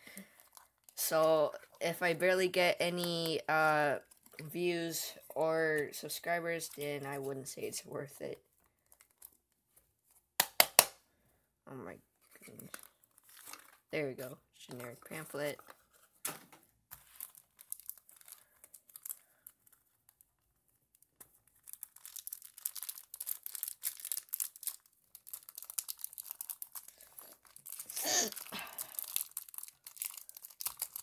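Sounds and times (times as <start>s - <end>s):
plastic wrap crinkling and tearing: 0.1s - 7.4s, 8.4s - 10.1s, 12.2s - 13.9s, 16.8s - 31.0s.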